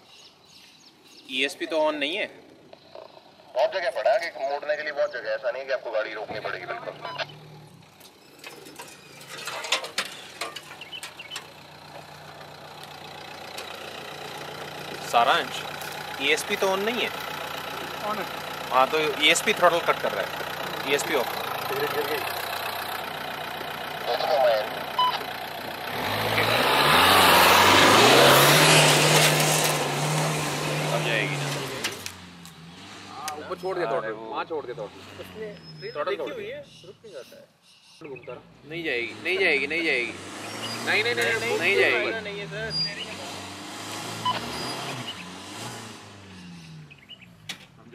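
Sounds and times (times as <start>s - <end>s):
diesel engine running at low revs: 6.3s - 33.4s
tyres churning loose dirt: 6.3s - 34.0s, 38.9s - 46.4s.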